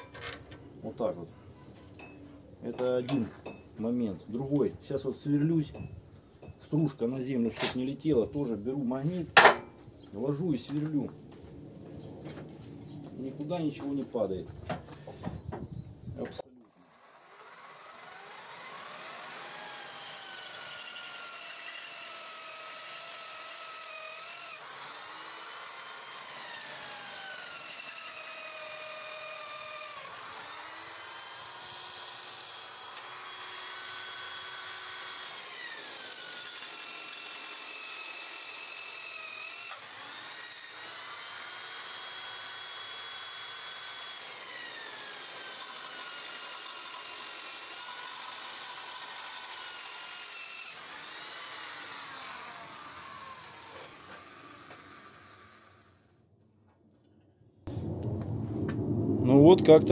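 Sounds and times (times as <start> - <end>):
electric drill boring into steel: 16.6 - 56.1.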